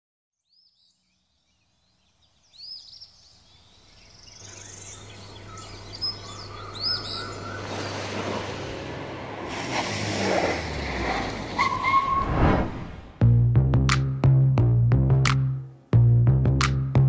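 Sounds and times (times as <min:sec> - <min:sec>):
birds chirping: 0:00.4 - 0:08.8.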